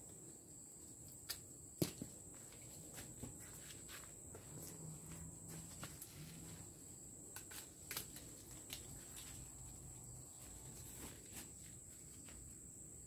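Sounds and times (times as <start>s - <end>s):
clicks and snaps of branches: 7.3s - 9.4s.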